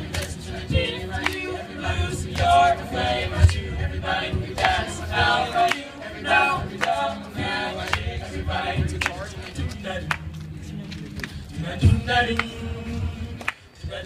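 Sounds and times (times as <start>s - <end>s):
men singing in close harmony: 0.0s - 14.0s.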